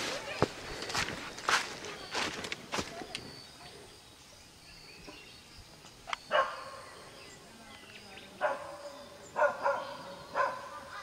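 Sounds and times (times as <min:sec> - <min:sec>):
dog barking: 0:06.3 - 0:06.8, 0:08.4 - 0:11.0.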